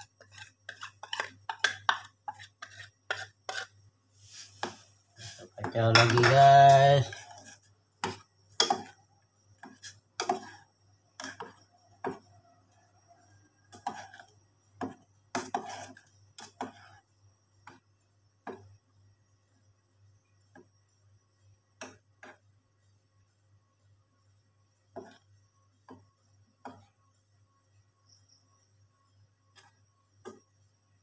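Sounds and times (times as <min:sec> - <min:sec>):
spoon clinking against steel pot: 0:05.8 - 0:07.0.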